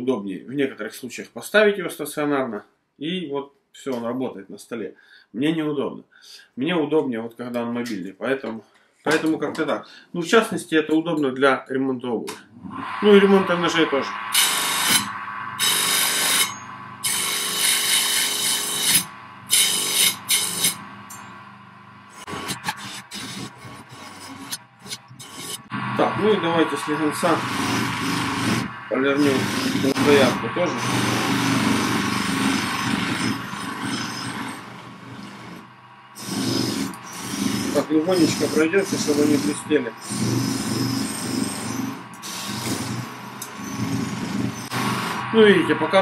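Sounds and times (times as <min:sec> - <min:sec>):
bench grinder motor hum: 0:14.2 - 0:45.3
knife blade grinding on wheel: 0:14.3 - 0:21.4, 0:22.1 - 0:25.7, 0:26.5 - 0:45.2.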